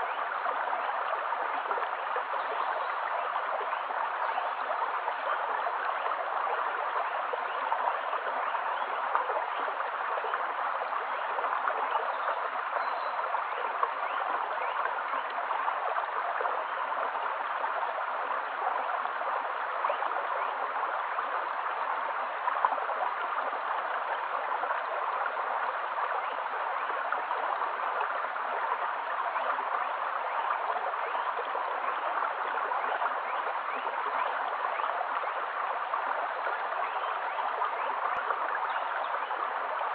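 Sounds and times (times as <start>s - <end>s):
stream flowing over pebbles: 0.0s - 39.9s.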